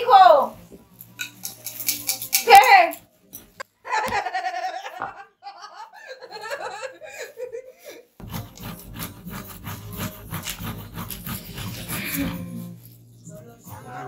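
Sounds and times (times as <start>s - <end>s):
woman laughing: 3.8s - 8.1s
tomato grated on metal grater: 8.2s - 12.8s.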